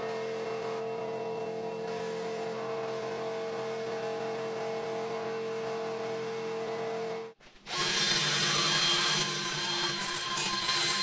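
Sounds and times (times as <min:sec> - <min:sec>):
wire wheel drill scrubbing metal: 0:07.7 - 0:11.0.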